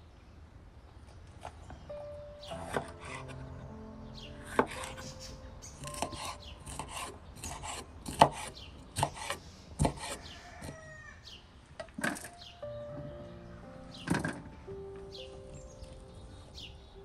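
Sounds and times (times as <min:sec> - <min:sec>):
knife slicing peppers: 0:05.8 - 0:10.8.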